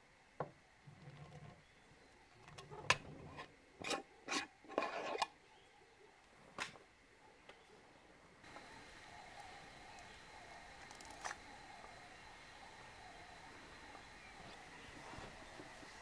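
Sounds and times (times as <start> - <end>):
jar lid clicks and scrapes: 2.9 - 5.3.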